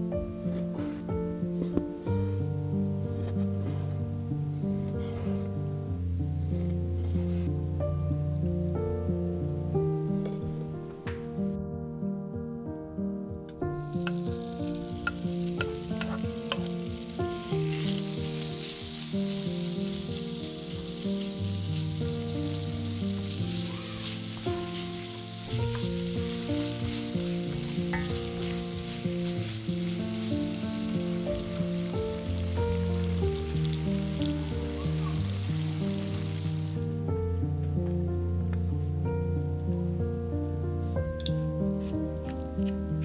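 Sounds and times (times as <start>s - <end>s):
soft background music: 0.0s - 43.0s
bacon sizzling in a pan: 13.8s - 36.8s.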